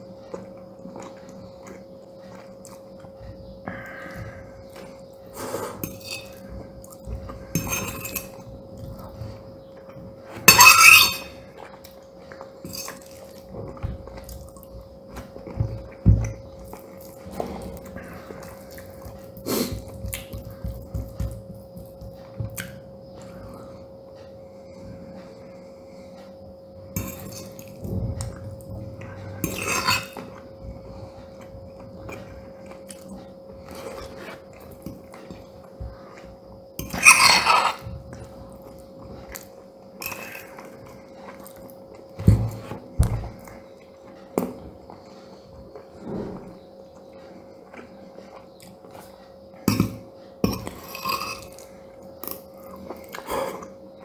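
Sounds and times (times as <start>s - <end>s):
faint steady hum: 0.0s - 54.0s
cutlery scraping on ceramic plate: 7.5s - 8.4s, 10.4s - 11.4s, 29.4s - 30.3s, 36.8s - 37.8s.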